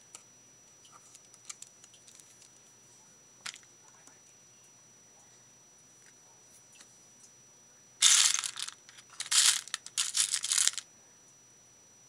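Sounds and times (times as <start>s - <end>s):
beads clicking together: 8.0s - 10.8s.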